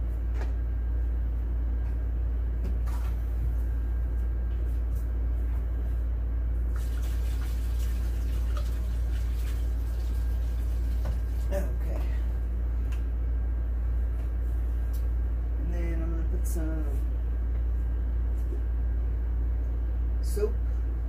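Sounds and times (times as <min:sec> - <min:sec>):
water pouring into a tub: 0:06.7 - 0:11.5.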